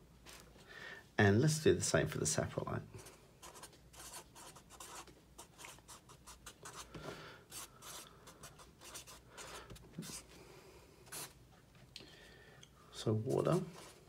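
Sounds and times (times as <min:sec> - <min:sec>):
marker scratching on paper: 0:03.0 - 0:06.9, 0:07.5 - 0:10.2, 0:11.1 - 0:11.3.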